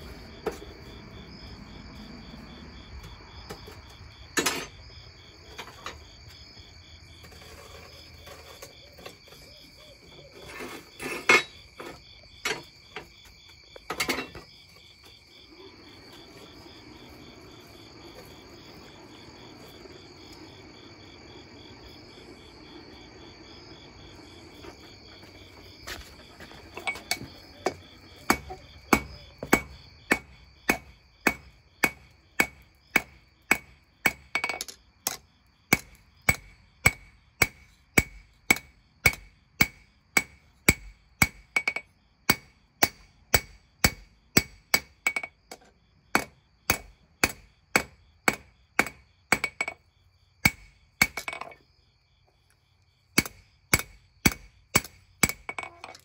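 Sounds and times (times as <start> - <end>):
crickets chirping: 0.0 - 56.0
hammer striking hot steel on anvil: 28.3 - 45.3, 46.2 - 49.8, 50.4 - 51.5, 53.2 - 55.8.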